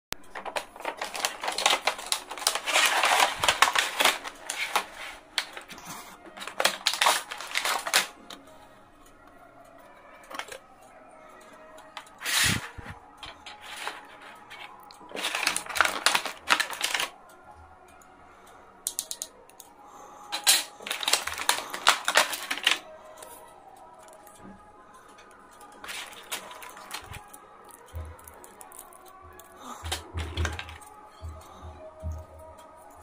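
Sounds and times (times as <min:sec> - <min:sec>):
pencils and ruler clattering: 0:00.1 - 0:08.5, 0:10.2 - 0:10.6, 0:11.9 - 0:17.2, 0:20.3 - 0:23.4, 0:25.1 - 0:32.2.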